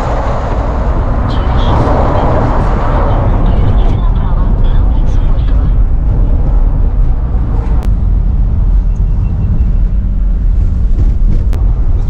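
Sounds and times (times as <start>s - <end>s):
vehicle road rumble: 0.0s - 12.0s.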